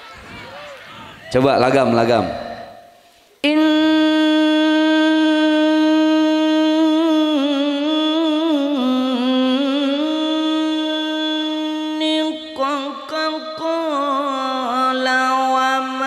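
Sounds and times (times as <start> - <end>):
man chanting melodic recitation: 1.3 - 2.7.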